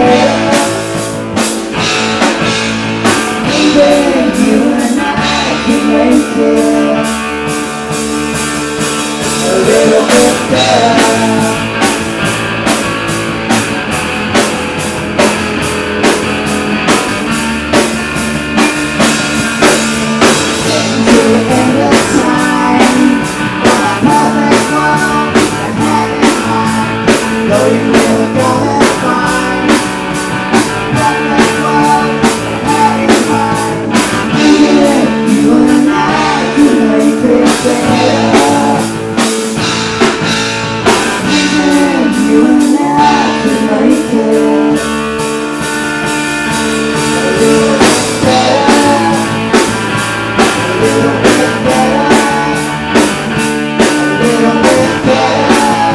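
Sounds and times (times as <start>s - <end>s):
person singing: 0.0s - 1.2s, 3.0s - 7.4s, 9.2s - 12.0s, 19.6s - 39.3s, 41.1s - 45.3s, 46.9s - 55.9s
bass guitar: 0.0s - 55.9s
distorted electric guitar: 0.0s - 55.9s
drum kit beat: 0.0s - 55.9s.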